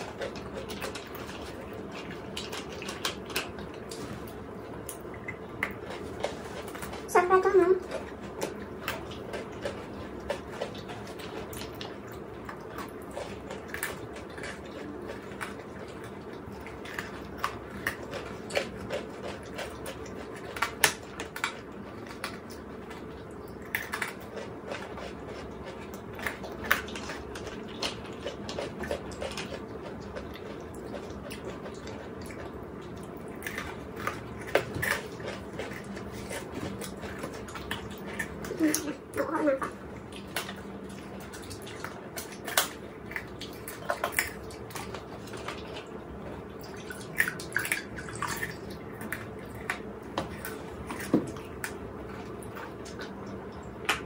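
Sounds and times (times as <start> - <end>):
chocolate crunching and chewing: 0.0 - 54.0
steady background hum: 0.0 - 54.0.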